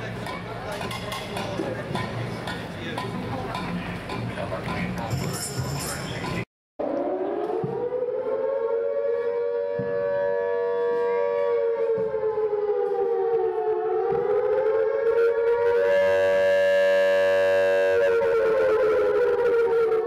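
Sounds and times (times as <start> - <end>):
air-raid siren wailing: 6.8 - 20.0.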